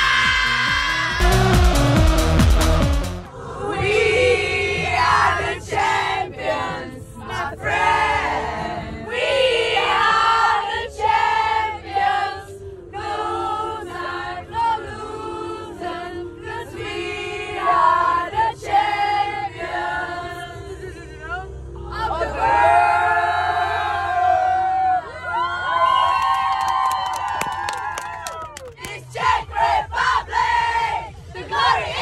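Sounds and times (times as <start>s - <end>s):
group of voices singing: 3.3s - 24.5s, 28.8s - 32.0s.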